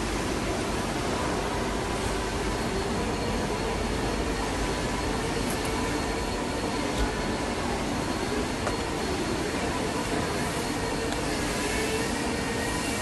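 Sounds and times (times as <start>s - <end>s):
faint high whine: 0.0s - 13.0s
machinery running: 0.0s - 13.0s.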